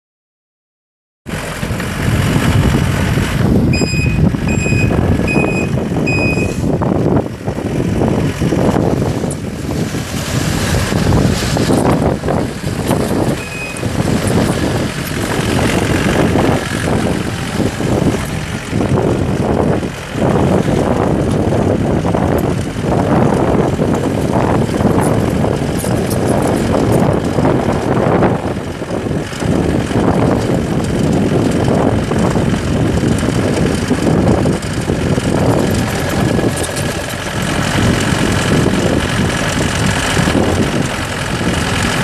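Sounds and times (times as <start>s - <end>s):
diesel engine running: 1.3s - 42.0s
backup alarm beeps: 3.7s - 6.6s, 13.4s - 13.8s.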